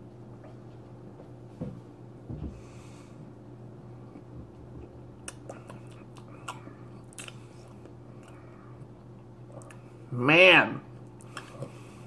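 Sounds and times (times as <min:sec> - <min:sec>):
steady low hum: 0:00.0 - 0:12.0
lip smacks and tongue clicks: 0:05.2 - 0:09.9, 0:11.0 - 0:11.7.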